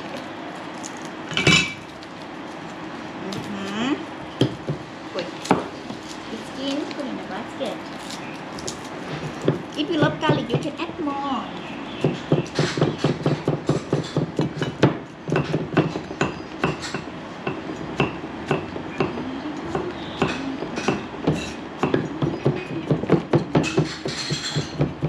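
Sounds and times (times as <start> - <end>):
cleavers chopping on wooden boards: 9.4 - 10.8, 12.0 - 25.0.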